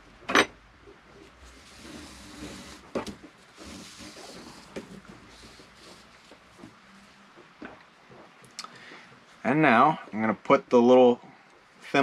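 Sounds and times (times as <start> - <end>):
rope rustling and scraping on wood: 1.1 - 8.4.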